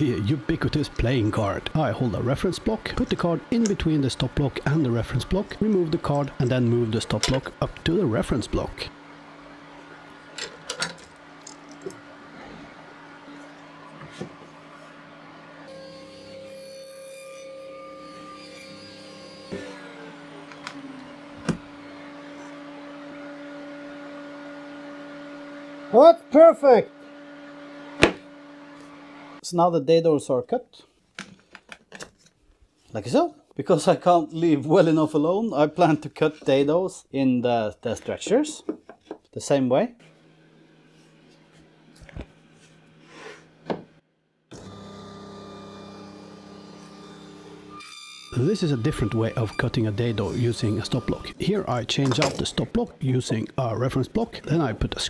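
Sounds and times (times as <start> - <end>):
power tool motor humming: 14.6 - 25.9, 44.5 - 51.4.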